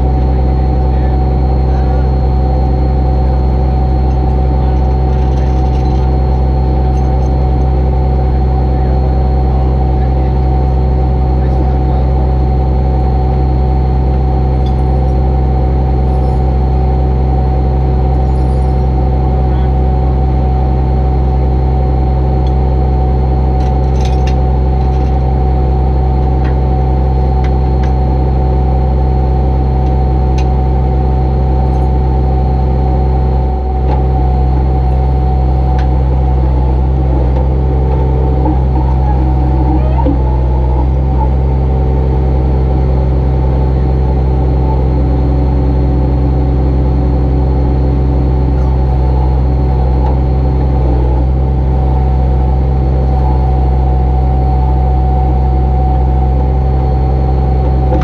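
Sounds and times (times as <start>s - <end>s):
hydraulic whine: 0.0s - 58.0s
truck engine running: 0.0s - 58.0s.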